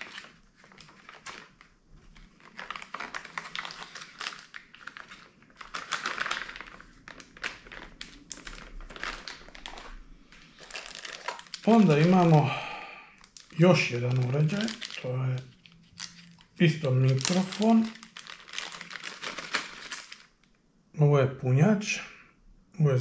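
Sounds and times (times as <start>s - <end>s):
plastic bag crinkling: 0.0s - 20.5s.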